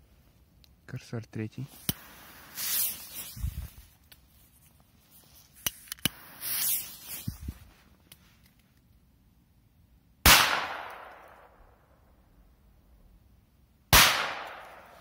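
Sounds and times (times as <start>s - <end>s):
fuse hiss: 1.6s - 4.0s, 5.0s - 7.9s.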